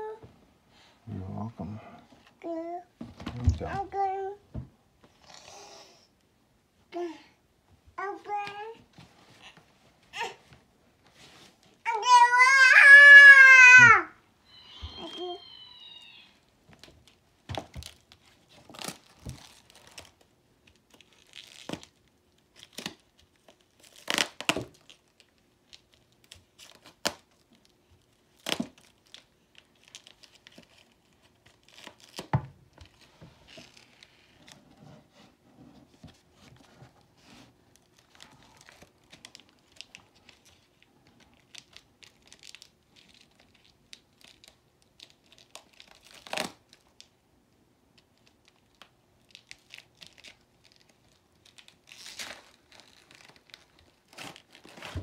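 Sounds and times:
foam netting snapping and rustling: 0:16.8 - 0:34.2.

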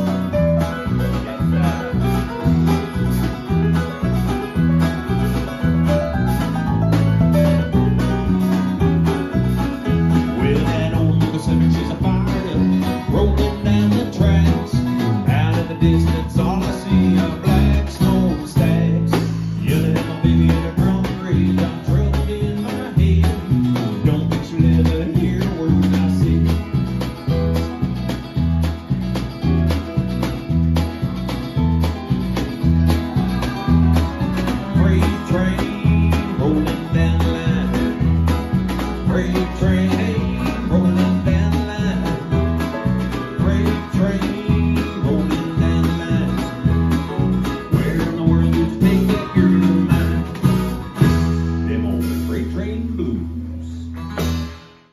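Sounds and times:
electric keyboard: 0:00.0 - 0:13.6
acoustic guitar strumming: 0:00.0 - 0:54.9
bass guitar: 0:00.0 - 0:54.9
drums: 0:00.0 - 0:54.9
keyboard: 0:00.0 - 0:54.9
man singing: 0:10.0 - 0:27.1, 0:34.4 - 0:54.0.

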